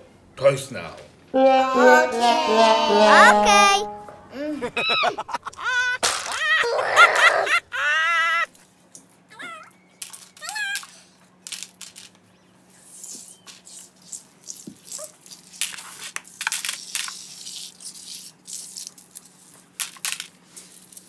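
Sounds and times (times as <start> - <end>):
plastic toy pieces clattering: 6.0 - 6.5, 10.0 - 12.2, 13.6 - 21.0.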